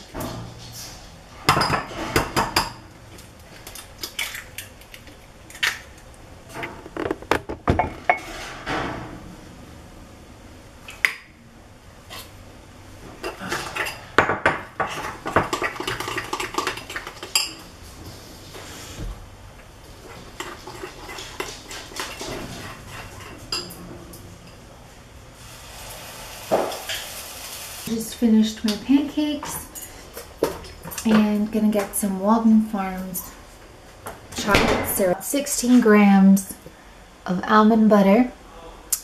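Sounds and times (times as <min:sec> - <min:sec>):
egg cracking: 0:03.2 - 0:07.6.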